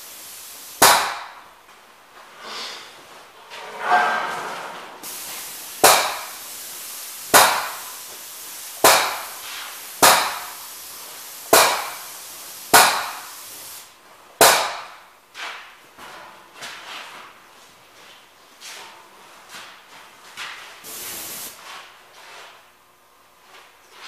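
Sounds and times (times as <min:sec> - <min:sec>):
spray gun hissing: 0:00.0 - 0:01.4, 0:05.0 - 0:13.9, 0:20.8 - 0:21.6.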